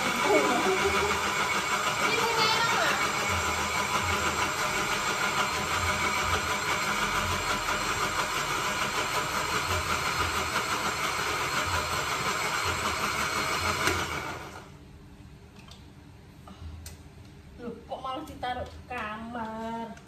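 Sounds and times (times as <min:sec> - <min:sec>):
electric blender running: 0:00.0 - 0:14.8.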